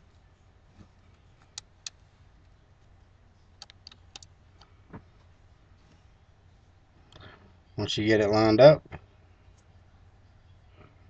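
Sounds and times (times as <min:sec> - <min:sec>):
small clicks and taps: 0:03.6 - 0:05.0.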